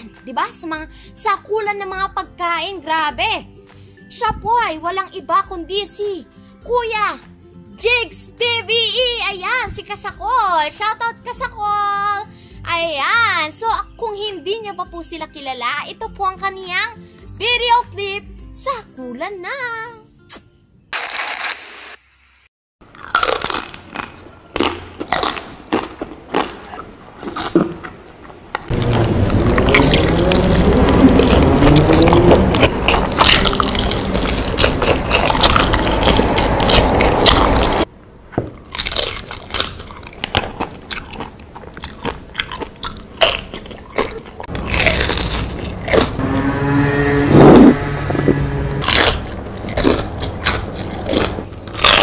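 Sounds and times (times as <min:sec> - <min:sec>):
man crunching fried chicken: 0:21.0 - 0:21.6, 0:22.8 - 0:37.9, 0:38.6 - 0:46.2, 0:48.7 - 0:52.0.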